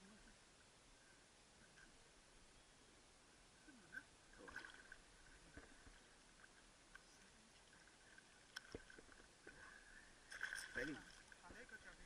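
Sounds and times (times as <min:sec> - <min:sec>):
water splashing and lapping: 0:03.9 - 0:12.0.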